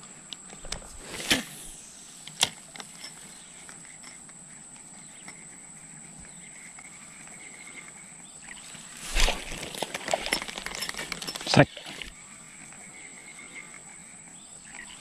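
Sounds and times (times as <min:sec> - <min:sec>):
faint insect tone: 0:00.0 - 0:15.0
high-pitched insect drone: 0:00.0 - 0:15.0.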